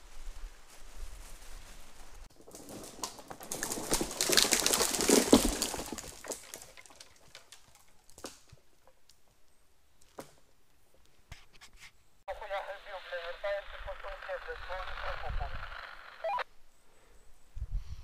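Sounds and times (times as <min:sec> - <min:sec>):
footsteps through dry undergrowth: 0:00.0 - 0:06.9.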